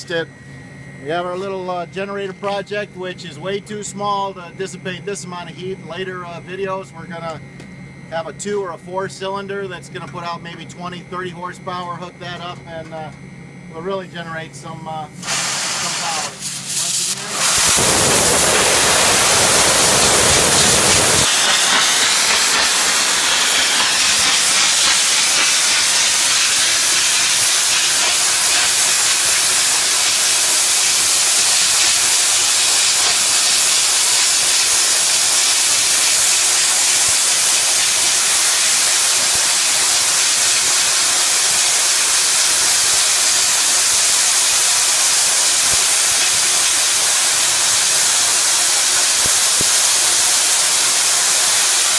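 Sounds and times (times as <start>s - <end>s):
steam hissing from valve: 15.2s - 51.9s.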